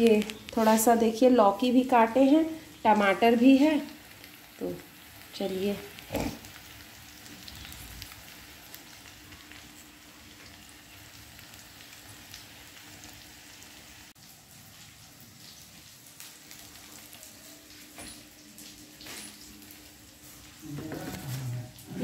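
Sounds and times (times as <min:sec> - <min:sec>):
vegetables frying in oil: 0:00.0 - 0:22.0.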